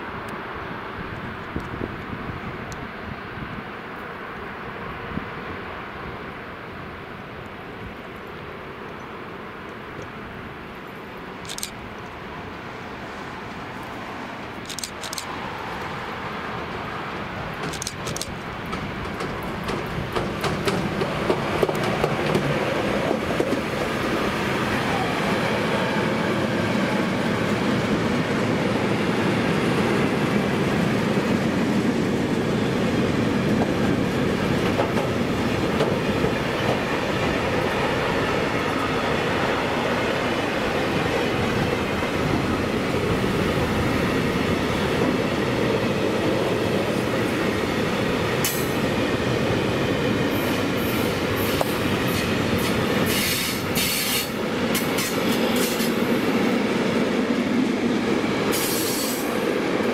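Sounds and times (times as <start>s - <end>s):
train wheels clattering over rails: 17.6s - 24.1s, 33.3s - 38.9s, 44.9s - 56.5s.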